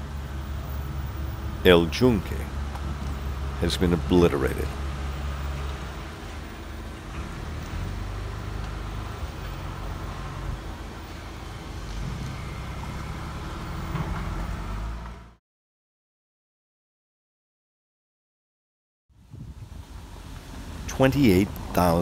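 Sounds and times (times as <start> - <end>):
vehicle driving rumble: 0.0 - 15.4, 19.2 - 22.0.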